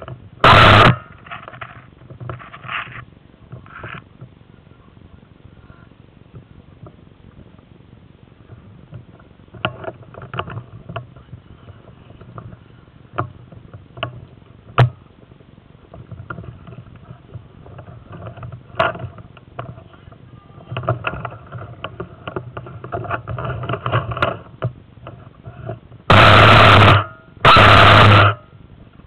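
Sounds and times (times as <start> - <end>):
sharp clicks and rustling: 0.0 - 4.4, 8.5 - 29.0
airsoft rifle full-auto bursts: 26.1 - 28.4.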